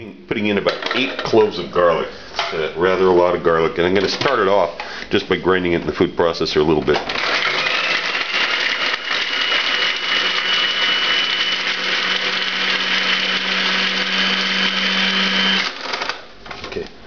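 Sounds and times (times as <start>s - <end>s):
food processor motor whining: 7.1s - 16.2s.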